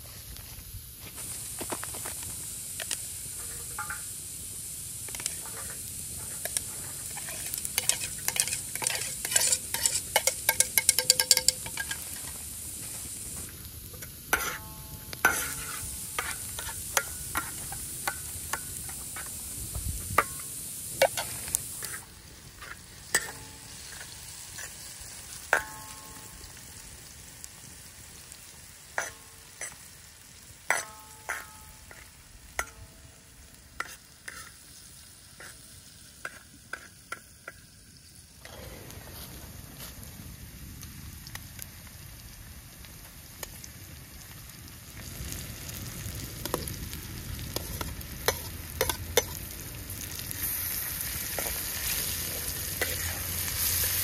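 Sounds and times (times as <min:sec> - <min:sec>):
food sizzling in a pan: 0:00.0 - 0:54.0
metal clinking on a pan: 0:03.4 - 0:04.1, 0:05.2 - 0:12.3, 0:23.1 - 0:23.7, 0:25.5 - 0:26.4, 0:30.7 - 0:33.0
utensil stirring and scraping: 0:05.1 - 0:12.3, 0:15.2 - 0:19.3, 0:33.8 - 0:34.6, 0:52.8 - 0:53.7.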